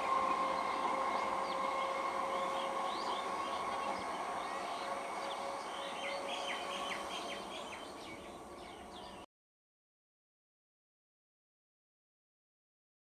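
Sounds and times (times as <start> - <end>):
train hum and rail noise: 0.0 - 9.2
birds chirping: 0.1 - 9.2.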